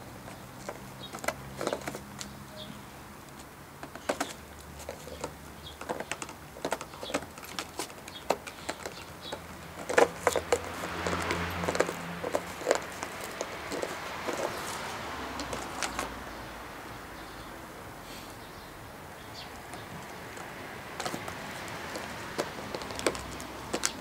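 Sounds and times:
plastic bottle crackling: 0:20.0 - 0:24.0.

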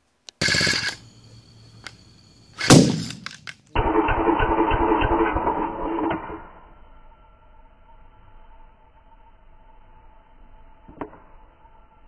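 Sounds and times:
small two-stroke engine running: 0:00.4 - 0:01.2, 0:03.8 - 0:06.4
loud backfire bang: 0:02.6 - 0:03.2.

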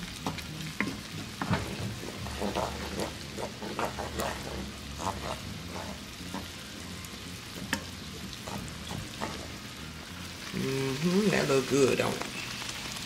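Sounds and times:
steady low hum: 0:00.0 - 0:10.6
spoon stirring thick sauce: 0:00.1 - 0:10.5.

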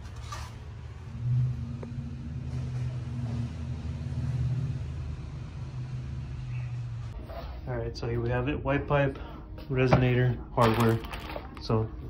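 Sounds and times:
low mechanical hum: 0:00.0 - 0:10.6.

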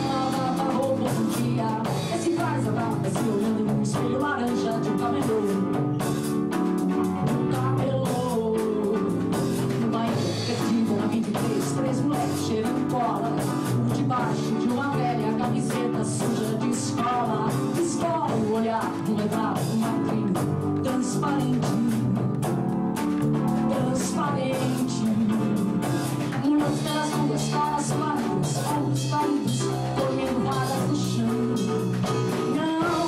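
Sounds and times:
song with singer and band: 0:00.0 - 0:33.0.

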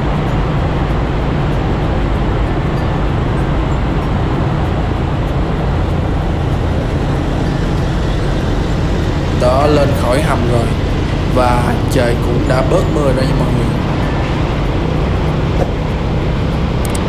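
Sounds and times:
traffic roar in tunnel: 0:00.0 - 0:17.0.

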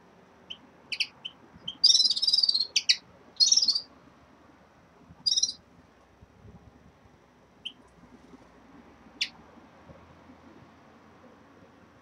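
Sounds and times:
finches chirping and trilling: 0:00.5 - 0:03.8, 0:05.3 - 0:05.6.

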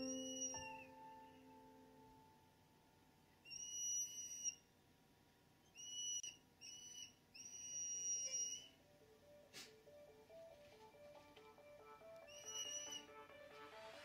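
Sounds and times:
high whistle-like tone: 0:00.0 - 0:01.5, 0:03.5 - 0:04.6, 0:05.7 - 0:08.8, 0:12.2 - 0:13.3.

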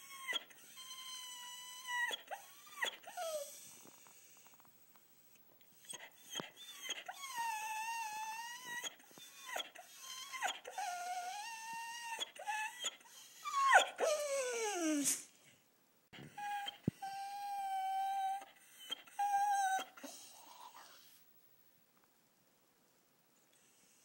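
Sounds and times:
dog howling and whining: 0:00.0 - 0:03.9, 0:05.8 - 0:15.1, 0:16.3 - 0:21.0.

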